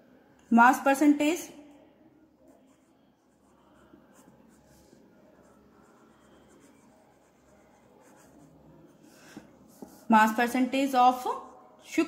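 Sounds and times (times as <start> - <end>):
pen scratching on paper: 2.4 - 10.4.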